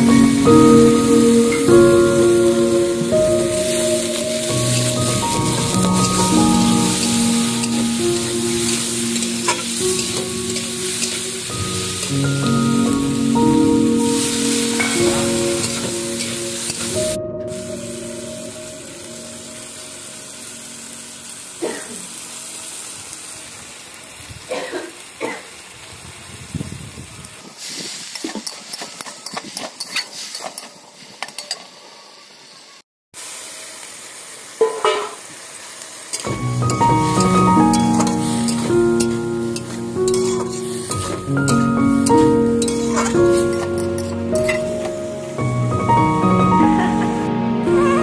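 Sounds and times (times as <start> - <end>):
background music: 0.0 - 21.2, 36.3 - 48.0
vegetables sizzling in oil: 0.0 - 48.0
metal spatula scraping pan: 37.8 - 44.7.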